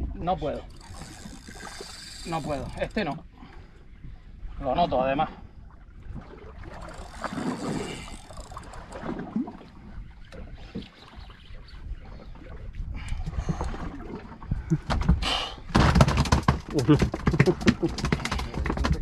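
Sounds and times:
water noise: 0.0 - 19.0.

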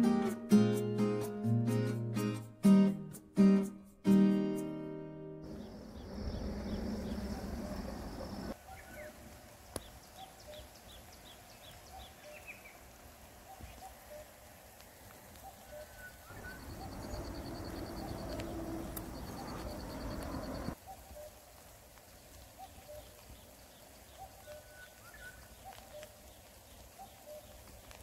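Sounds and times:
low outdoor rumble: 5.4 - 8.6, 16.3 - 20.8
songbirds chirping: 5.4 - 28.0.

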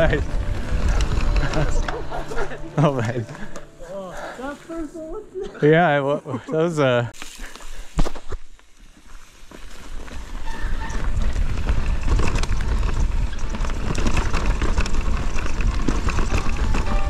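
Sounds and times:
wind buffeting microphone: 0.0 - 2.6, 10.4 - 17.0
bike clattering: 0.0 - 3.7, 7.2 - 17.0
tyres rumbling over dirt: 0.0 - 4.4, 9.4 - 17.0.

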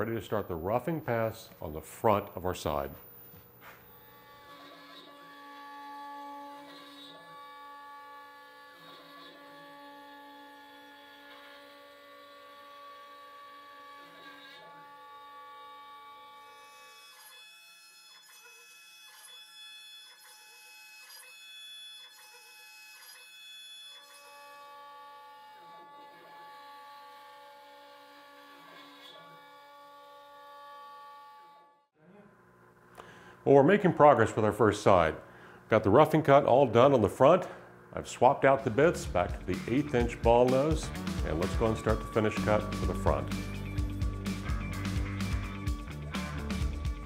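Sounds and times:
router spindle cutting wood: 4.0 - 31.8, 38.2 - 47.0.

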